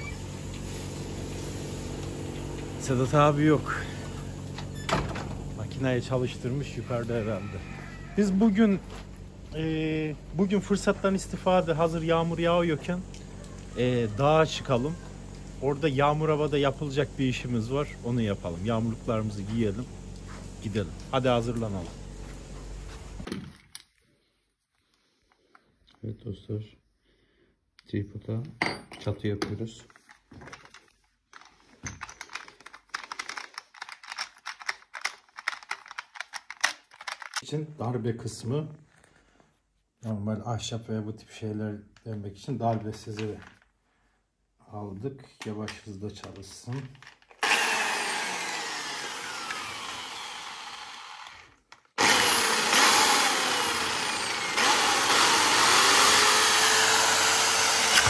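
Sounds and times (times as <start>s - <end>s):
drill running into wood: 47.4s - 58.0s.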